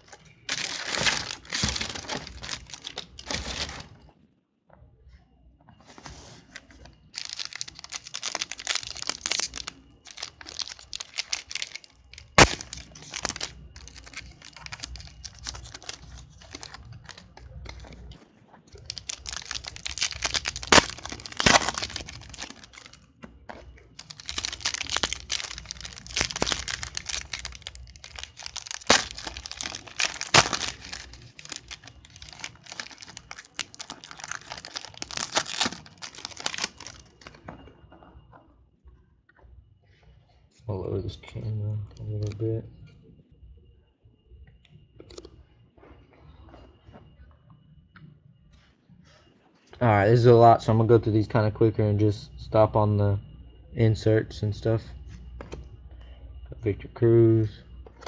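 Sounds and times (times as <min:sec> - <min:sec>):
sharp wrapper snaps: 0:00.0 - 0:03.8, 0:07.1 - 0:18.0, 0:18.8 - 0:23.0, 0:24.0 - 0:37.3
foil wrappers crinkling and tearing: 0:00.0 - 0:04.0, 0:06.1 - 0:37.4.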